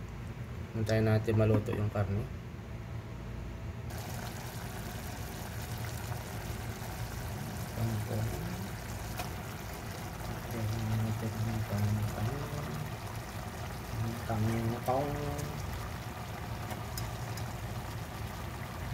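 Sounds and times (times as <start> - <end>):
sauce bubbling in a pot: 3.9 - 18.9.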